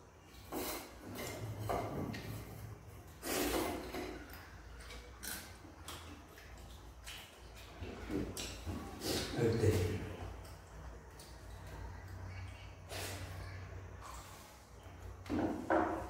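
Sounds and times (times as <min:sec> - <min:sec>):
person chewing with wet smacking: 0:04.2 - 0:09.0.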